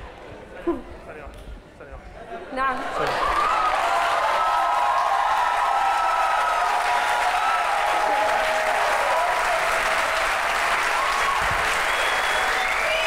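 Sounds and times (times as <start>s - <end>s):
audience applauding: 2.8s - 13.0s
voices cheering: 3.0s - 13.0s.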